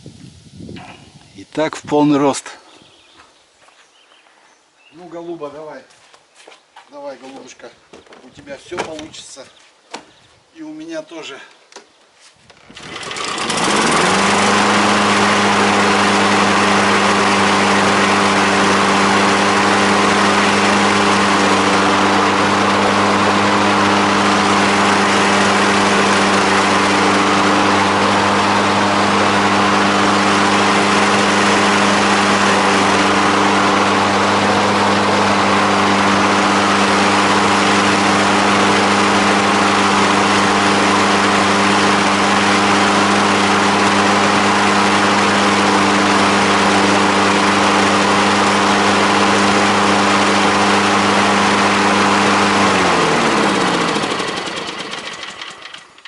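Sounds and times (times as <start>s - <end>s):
lawn mower engine running: 12.5s - 56.0s.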